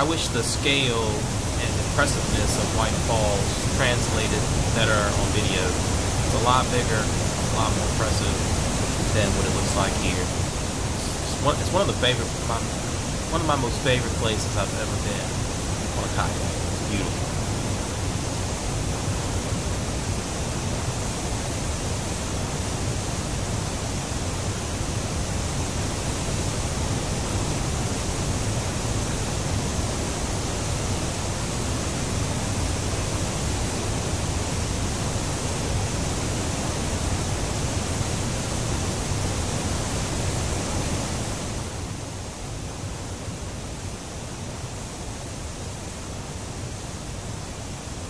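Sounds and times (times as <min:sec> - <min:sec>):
whitewater rushing over rocks: 0:00.0 - 0:29.6.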